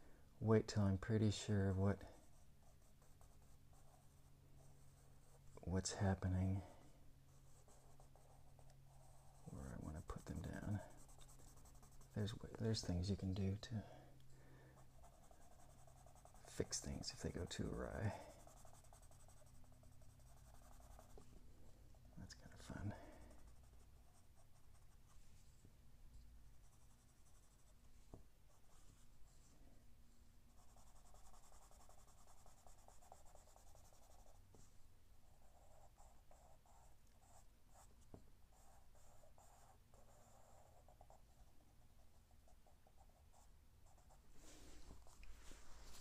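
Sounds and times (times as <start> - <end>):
pencil scratching on paper: 7.3 - 13.3, 14.8 - 21.2, 22.3 - 25.2, 26.6 - 27.7, 30.5 - 34.7, 35.3 - 37.9, 38.5 - 44.2.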